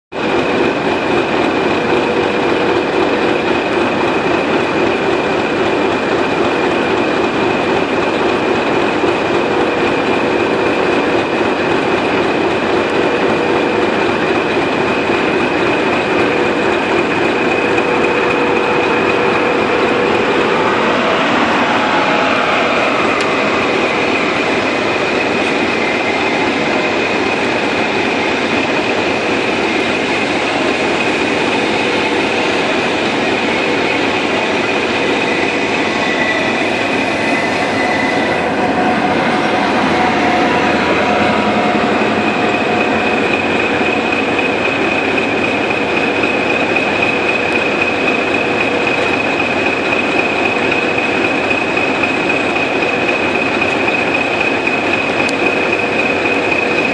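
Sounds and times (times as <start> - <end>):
train passing: 0.1 - 56.9
diesel locomotive engine idling: 0.2 - 56.9
high whistle: 17.9 - 27.2, 34.6 - 45.1.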